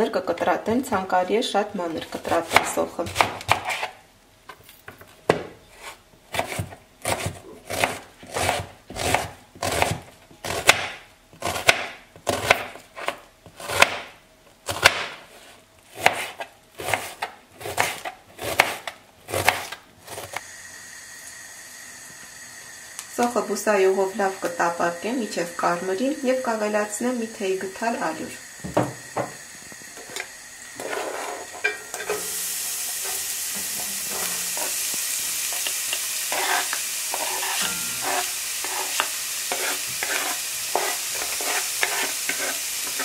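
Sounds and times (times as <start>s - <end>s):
knife chopping on plastic board: 6.3s - 14.1s, 14.7s - 15.2s, 16.0s - 20.4s
faint hum: 20.0s - 38.9s.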